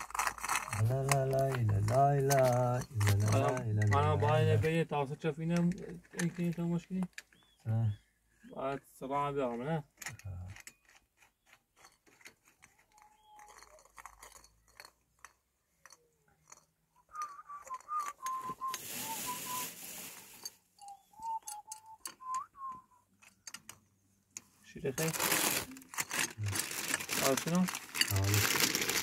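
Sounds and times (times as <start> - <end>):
person whistling a tune: 17.1 - 19.8, 20.8 - 23.1
loud hiss: 18.8 - 20.4.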